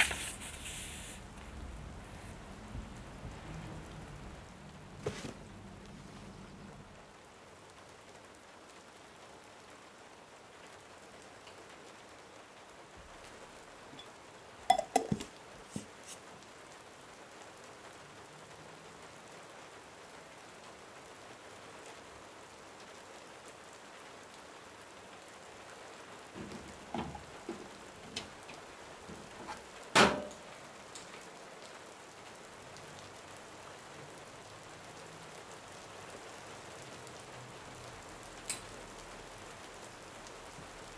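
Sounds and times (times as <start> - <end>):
rain falling: 0.0 - 40.9.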